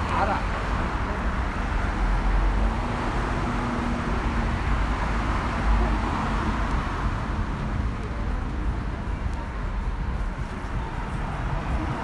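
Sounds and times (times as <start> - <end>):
low rumble of traffic: 0.0 - 12.0.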